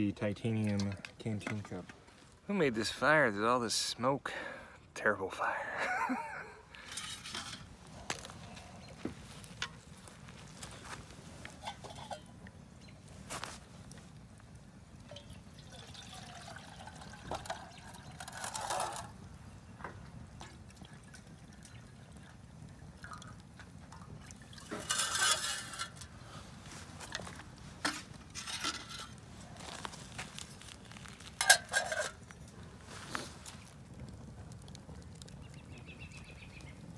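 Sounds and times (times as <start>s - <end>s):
metal lid clinking: 6.8s - 7.7s, 11.6s - 12.4s, 24.7s - 26.1s, 27.8s - 29.2s, 31.4s - 32.2s
water pouring into metal cup: 15.0s - 19.2s, 20.7s - 26.1s.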